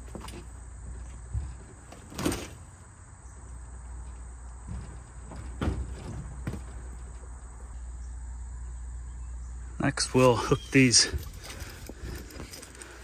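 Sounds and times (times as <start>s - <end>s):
frame knocks: 0.0s - 2.8s, 3.5s - 7.7s.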